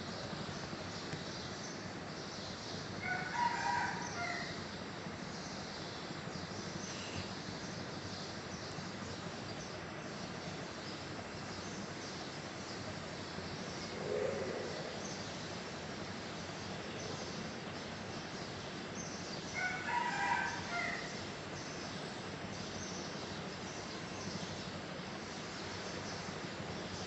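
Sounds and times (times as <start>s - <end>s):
steady background hiss: 0.0s - 27.0s
rooster crowing: 3.0s - 4.6s, 19.6s - 21.2s.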